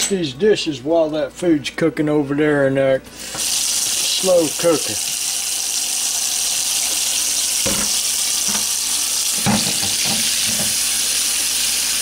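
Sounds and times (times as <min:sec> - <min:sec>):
faucet running into steel sink: 0:03.2 - 0:12.0
knocks in sink: 0:07.6 - 0:08.7, 0:09.4 - 0:10.8.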